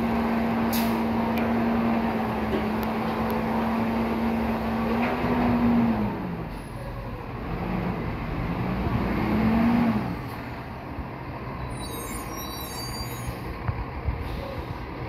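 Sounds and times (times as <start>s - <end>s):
garbage truck engine revving: 7.3s - 10.6s.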